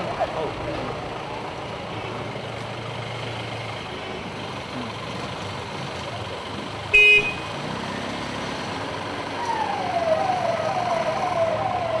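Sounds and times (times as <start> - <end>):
vehicle engine running: 0.0 - 9.3
vehicle horn: 6.9 - 7.5
siren wailing: 9.4 - 12.0.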